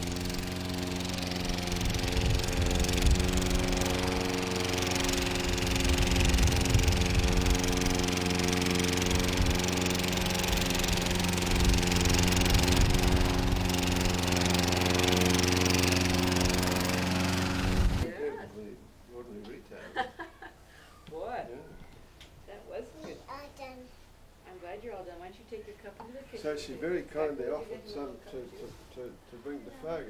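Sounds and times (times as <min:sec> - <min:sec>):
lawn mower engine running: 0:00.0 - 0:18.1.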